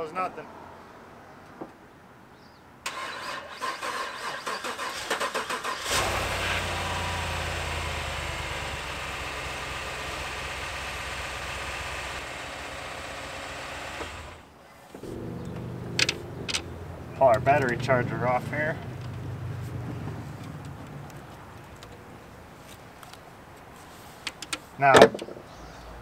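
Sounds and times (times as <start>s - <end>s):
car starter cranking: 2.9s - 12.3s, 15.0s - 22.1s
car engine revving and idling: 5.8s - 14.4s, 15.0s - 22.2s.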